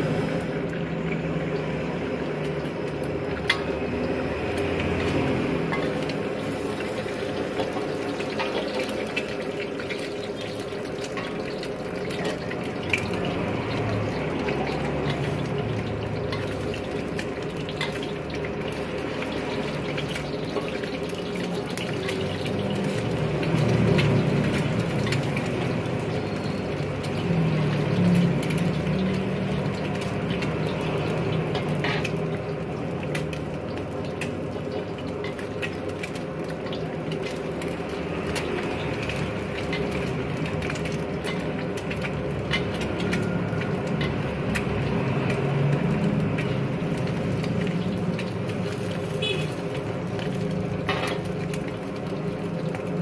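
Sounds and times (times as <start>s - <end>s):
egg sizzling in oil: 0.0s - 53.0s
spatula scraping wok: 31.5s - 32.2s.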